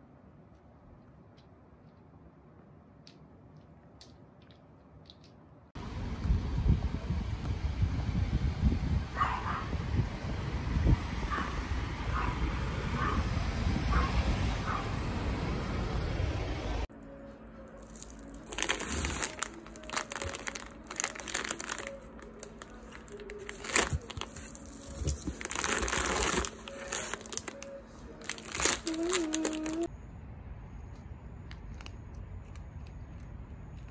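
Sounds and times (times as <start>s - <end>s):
outdoor street noise: 0.0s - 33.9s
plastic bags crinkling: 17.8s - 29.9s.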